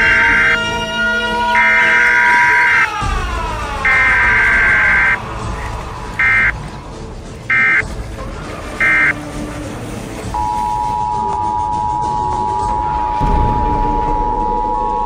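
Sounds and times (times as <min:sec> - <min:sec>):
electronic alarm blasts: 0:00.0 - 0:00.7, 0:01.5 - 0:03.1, 0:03.8 - 0:05.2, 0:06.2 - 0:06.5, 0:07.5 - 0:07.8, 0:08.8 - 0:09.2, 0:10.4 - 0:15.0
steady high tone: 0:00.0 - 0:00.9, 0:01.5 - 0:03.0, 0:03.8 - 0:05.2, 0:06.2 - 0:06.6, 0:08.8 - 0:09.2, 0:10.4 - 0:15.0.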